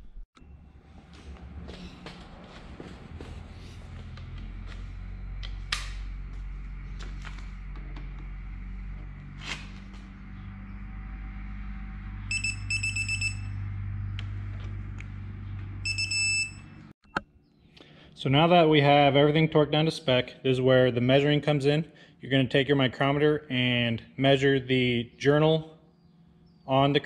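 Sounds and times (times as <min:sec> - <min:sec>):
steady low hum: 0:00.0 - 0:27.0
torque wrench high beeps: 0:12.3 - 0:13.6, 0:15.8 - 0:17.2.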